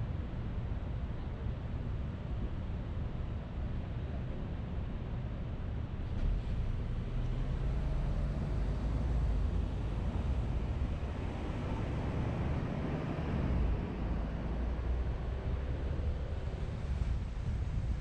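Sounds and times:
car tyres and engine rumble: 5.8s - 18.0s.

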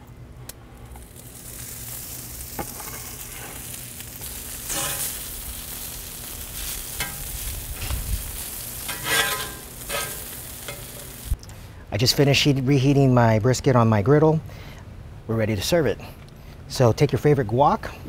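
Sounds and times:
meat sizzling on a griddle: 0.9s - 11.4s
metal fork clicking and scraping: 8.9s - 11.1s.

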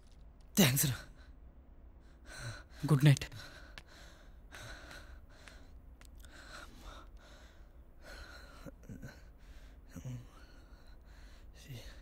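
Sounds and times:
man breathing heavily: 2.0s - 12.0s.

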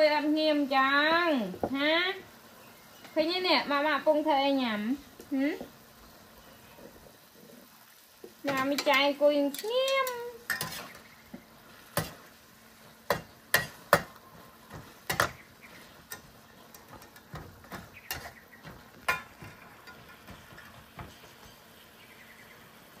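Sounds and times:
faint sizzle: 0.0s - 23.0s
utensils clinking on a wok: 8.4s - 11.1s, 13.1s - 21.6s.

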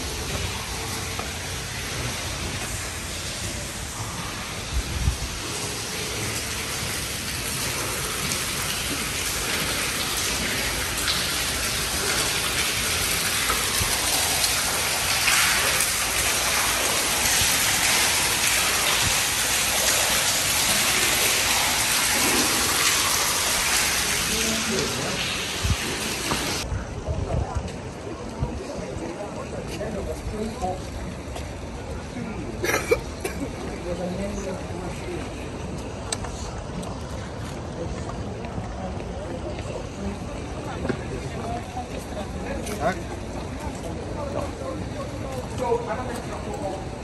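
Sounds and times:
steady hiss: 0.0s - 26.7s.

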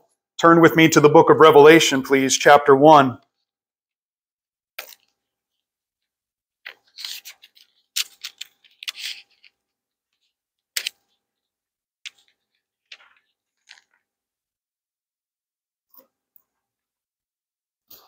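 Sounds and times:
thin pages being leafed through: 6.7s - 9.6s.

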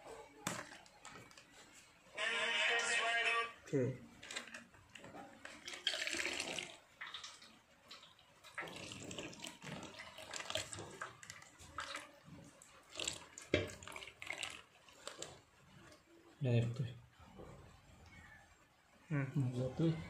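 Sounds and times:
milk pouring into water: 4.2s - 16.2s
splashing and trickling: 4.2s - 16.2s.

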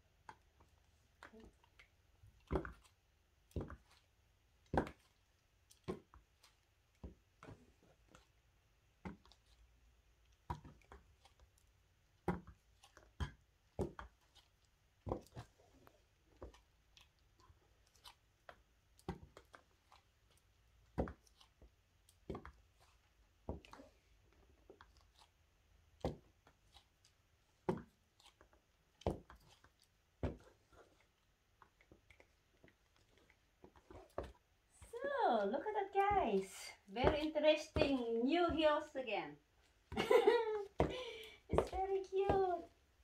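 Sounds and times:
high heels clacking on hard floor: 37.0s - 38.8s, 39.9s - 42.7s.

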